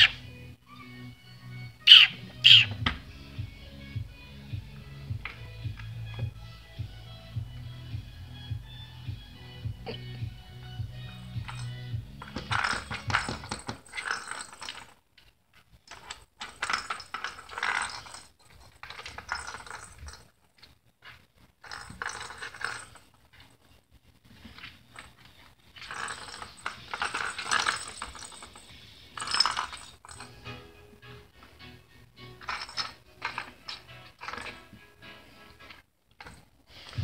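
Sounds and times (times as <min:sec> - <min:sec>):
ball rattling in plastic track: 0:11.5 - 0:15.0, 0:15.8 - 0:23.5, 0:32.4 - 0:34.7.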